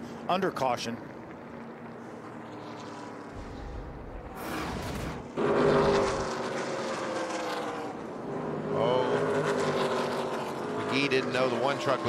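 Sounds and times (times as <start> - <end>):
race truck engines at speed: 0.0 - 12.0
truck engine at low pace: 0.0 - 12.0
whoosh with deep boom: 3.4 - 5.3.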